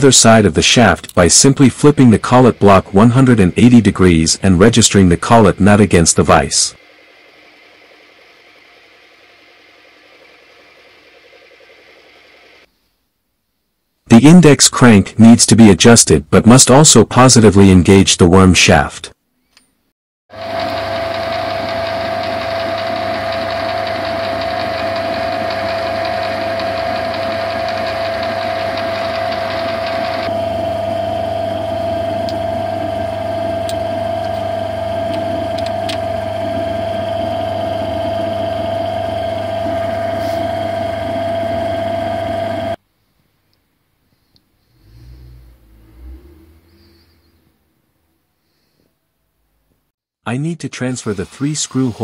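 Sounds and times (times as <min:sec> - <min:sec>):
metal lathe whining: 0:20.4 - 0:42.8.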